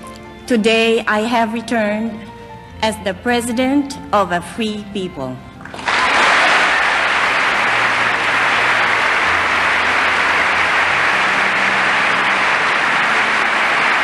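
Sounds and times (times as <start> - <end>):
large audience applauding: 5.6 - 14.0.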